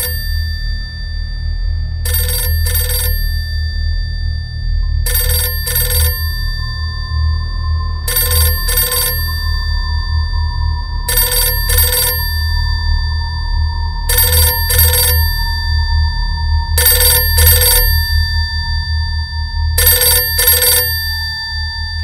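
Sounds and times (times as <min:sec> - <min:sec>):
telephone bell double ring: 0:00.0 - 0:01.0, 0:02.1 - 0:04.3, 0:05.1 - 0:07.1, 0:08.1 - 0:09.8, 0:11.1 - 0:13.1, 0:14.1 - 0:15.9, 0:16.8 - 0:18.5, 0:19.8 - 0:22.0
low steady drone: 0:00.0 - 0:22.0.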